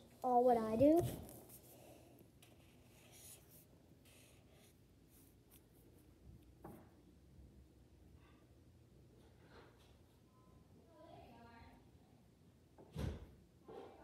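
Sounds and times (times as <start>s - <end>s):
marker drawing on paper: 1.0s - 5.8s.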